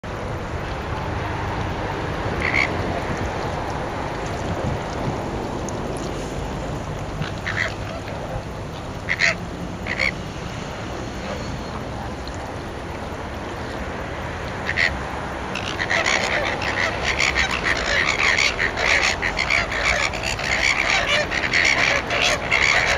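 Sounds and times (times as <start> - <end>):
flamingos honking: 2.3 - 4.8, 7.0 - 10.5, 14.4 - 22.9.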